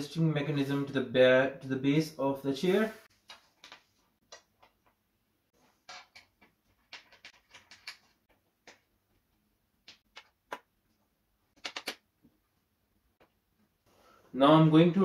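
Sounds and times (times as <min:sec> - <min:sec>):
screws and metal parts rattling: 0:05.7 - 0:08.4.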